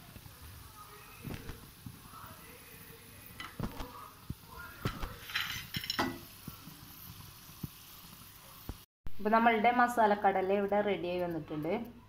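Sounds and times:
peanuts sizzling in hot oil: 0:00.0 - 0:11.7
metal spoon knocking a wok: 0:05.3 - 0:06.3.

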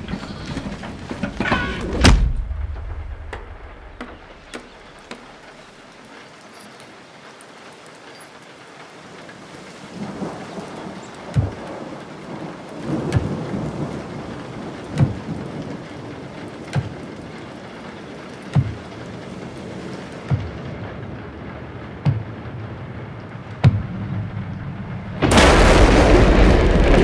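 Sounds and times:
deep thuds: 0:00.0 - 0:05.4, 0:22.0 - 0:22.4, 0:23.6 - 0:24.4
rain-like hiss: 0:00.0 - 0:27.0.

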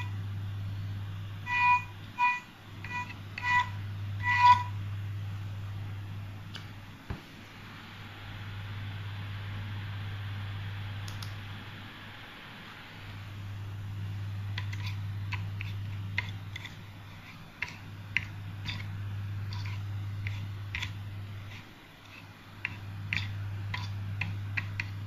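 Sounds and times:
steady low hum: 0:00.0 - 0:25.0
mechanism light clicks: 0:11.0 - 0:11.4.

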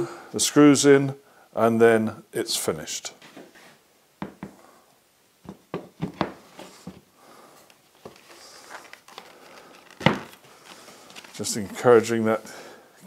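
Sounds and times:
wood knocking on wooden table: 0:04.2 - 0:04.6, 0:05.5 - 0:06.4
wood scraping and handling: 0:08.0 - 0:12.4.

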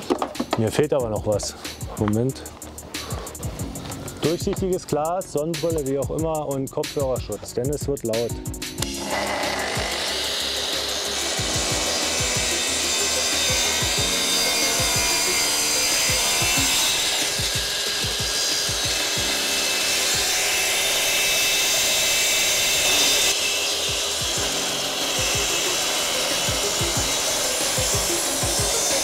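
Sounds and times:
plunge saw motor running: 0:08.8 - 0:29.0
saw blade rasping through wood: 0:08.9 - 0:29.0.

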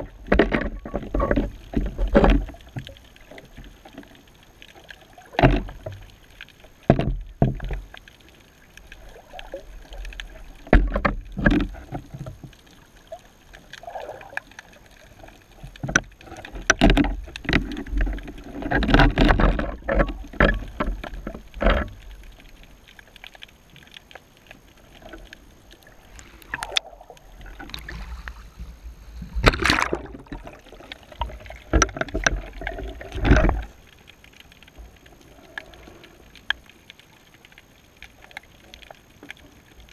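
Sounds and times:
underwater wave surge rumbling: 0:25.9 - 0:33.8.

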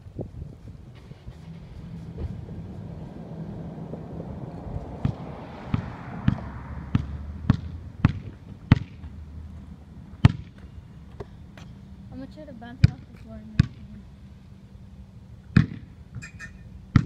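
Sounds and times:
basketball bouncing: 0:05.0 - 0:09.2, 0:10.2 - 0:10.7.

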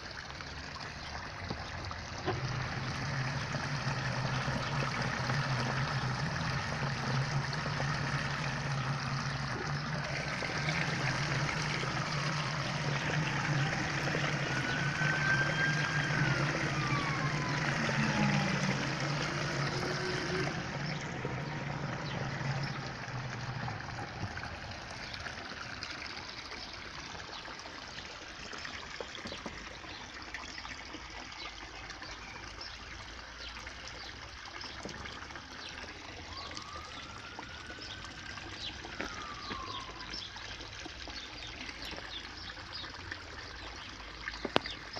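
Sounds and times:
water jet spraying in filter barrel: 0:00.0 - 0:30.1
water splashing into pond: 0:00.0 - 0:44.9.

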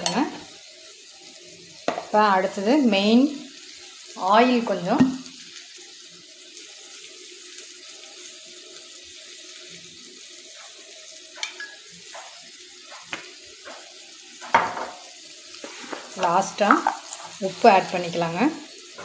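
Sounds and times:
kitchen hiss: 0:00.0 - 0:19.0.

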